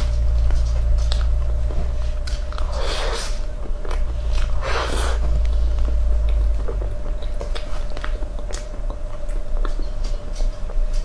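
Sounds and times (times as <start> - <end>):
steady hum: 0.0 - 11.0
chewing mouth sounds: 2.2 - 10.8.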